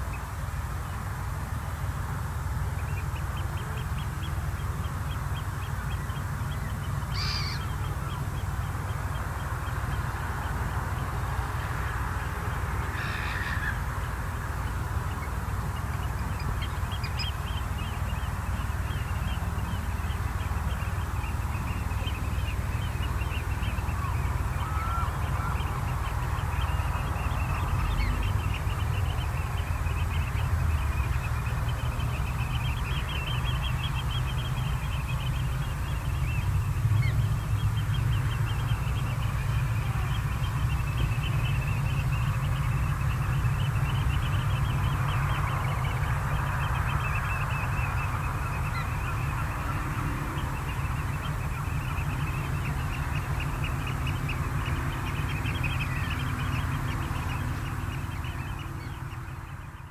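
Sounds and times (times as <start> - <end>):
low steady rumble: 0.0 - 59.9
waterbirds calling: 0.0 - 59.9.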